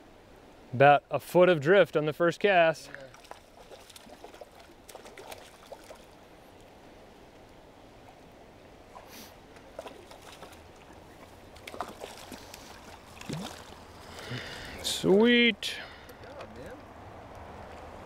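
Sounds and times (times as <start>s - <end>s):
faint stream running water: 0.0s - 18.0s
fish splashing at surface: 3.1s - 6.2s, 9.0s - 14.8s.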